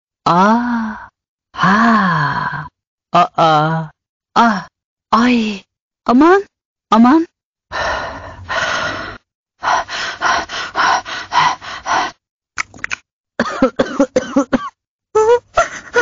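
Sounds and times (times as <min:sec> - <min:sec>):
pitched vocal sounds: 0:00.3 - 0:05.6
synthetic voice coughing: 0:13.4 - 0:14.8.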